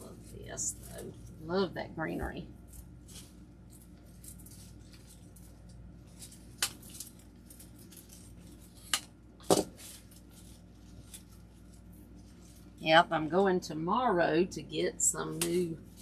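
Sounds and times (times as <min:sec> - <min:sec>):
faint rustling of artificial stems: 0:02.6 - 0:13.0.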